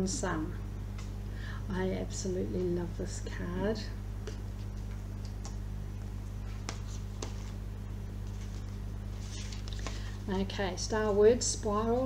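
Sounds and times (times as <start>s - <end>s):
low electrical hum: 0.0s - 12.0s
pages leafed through: 8.2s - 10.2s.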